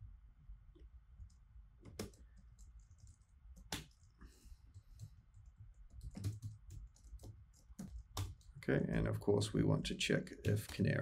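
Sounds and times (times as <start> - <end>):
computer keyboard keystrokes: 1.2 - 4.1, 4.7 - 8.6.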